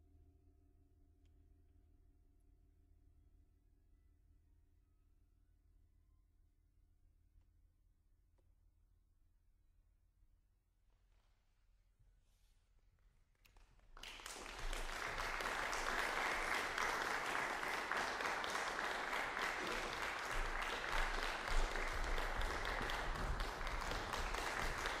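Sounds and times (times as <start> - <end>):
audience applause: 13.9 - 25.0.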